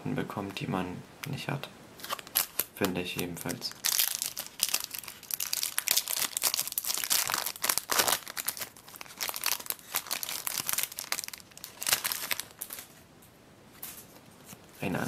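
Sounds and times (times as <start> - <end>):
foil wrapper crinkling and tearing: 2.0 - 12.9.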